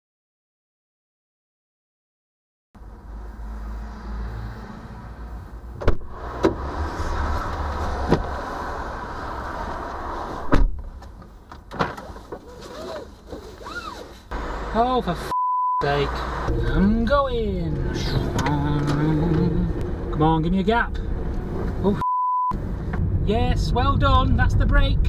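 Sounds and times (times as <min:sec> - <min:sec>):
outdoor rumble: 0:02.8 - 0:25.0
car door clicking open: 0:05.8 - 0:06.6
car door slamming shut: 0:05.8 - 0:06.6, 0:08.0 - 0:08.4, 0:10.4 - 0:11.0.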